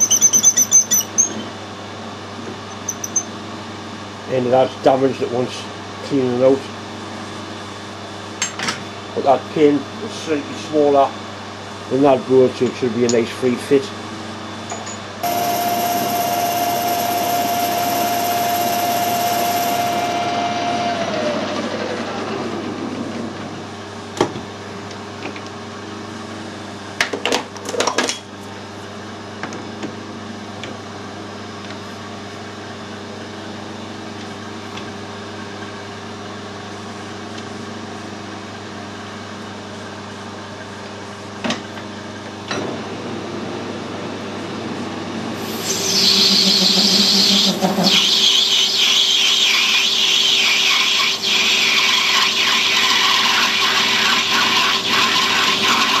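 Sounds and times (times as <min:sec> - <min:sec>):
lathe cutting metal: 0:15.2 - 0:21.6, 0:45.4 - 0:56.0
lathe motor hum: 0:15.2 - 0:23.0, 0:45.2 - 0:56.0.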